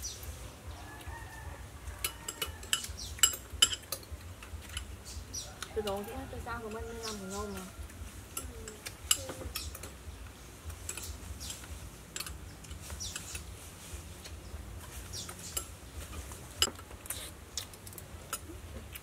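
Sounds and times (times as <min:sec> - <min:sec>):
spoons clinking on dishes: 0:02.0 - 0:04.9.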